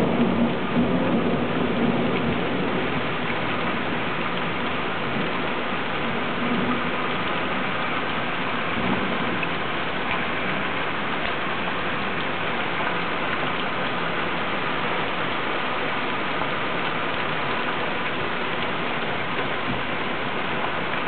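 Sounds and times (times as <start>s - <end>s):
heavy rain on lawn and pavement: 0.0s - 21.0s.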